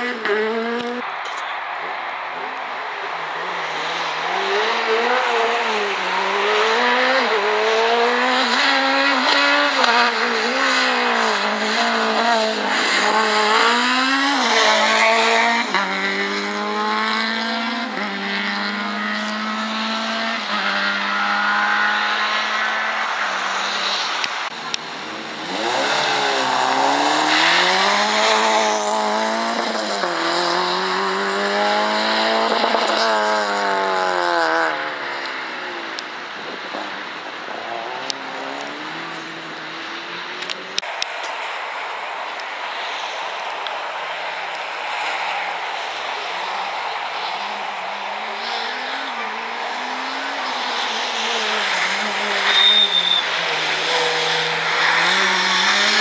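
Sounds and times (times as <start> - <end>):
rally car engine accelerating: 3.1 - 41.5, 42.3 - 56.0.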